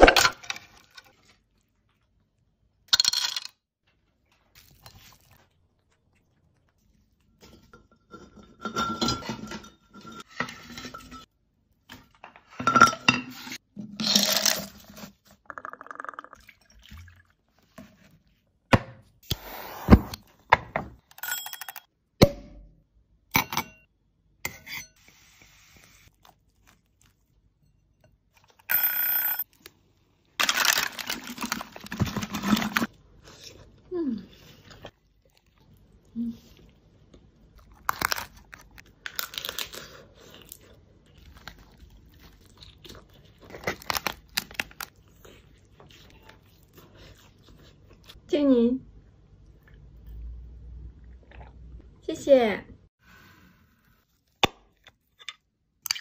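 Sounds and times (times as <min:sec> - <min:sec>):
clinks and knocks of dishes: 0:07.5 - 0:11.3, 0:12.4 - 0:13.4.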